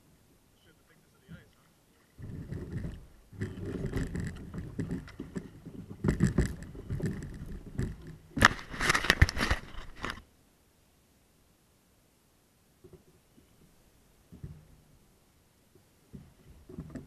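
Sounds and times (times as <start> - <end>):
kayak hull scraping through ice: 2.0 - 10.2.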